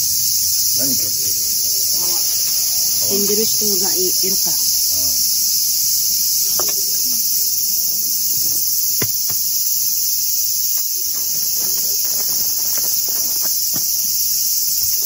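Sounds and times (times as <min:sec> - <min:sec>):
cicadas buzzing: 0:00.0 - 0:15.0.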